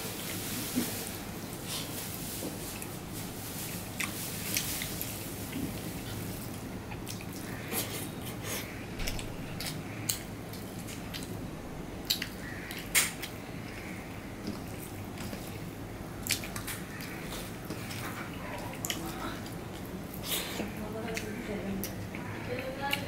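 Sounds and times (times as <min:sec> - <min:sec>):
chewing and wet mouth sounds: 0:03.6 - 0:11.4, 0:12.0 - 0:23.0
sharp wet clicks: 0:12.0 - 0:14.6.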